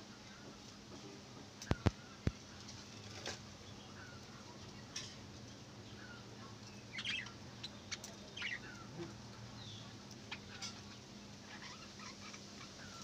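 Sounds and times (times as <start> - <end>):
budgerigars chirping: 6.8 - 9.0, 9.6 - 13.0.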